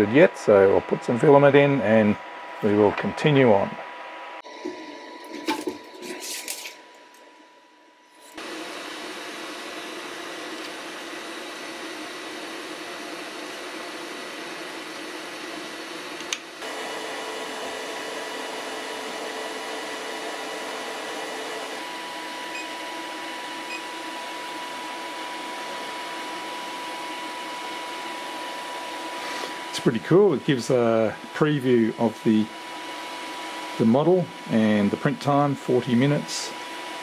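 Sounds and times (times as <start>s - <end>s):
printer fans whirring: 0.0s - 6.2s, 8.4s - 37.0s.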